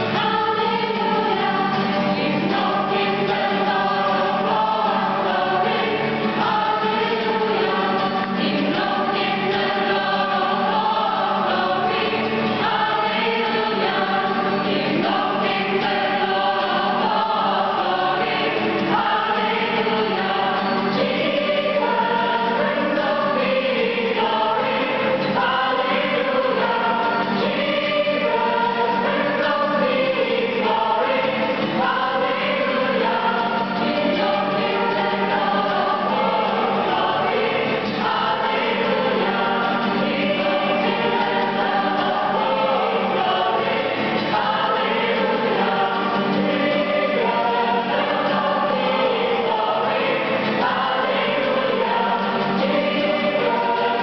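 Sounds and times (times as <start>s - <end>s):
acoustic guitar: 0.0s - 54.0s
gospel choir singing: 0.0s - 54.0s.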